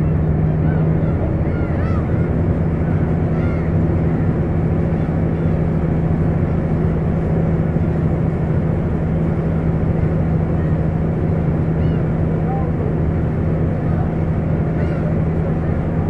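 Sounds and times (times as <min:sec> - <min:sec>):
boat engine droning: 0:00.0 - 0:16.0
gulls calling: 0:00.0 - 0:16.0.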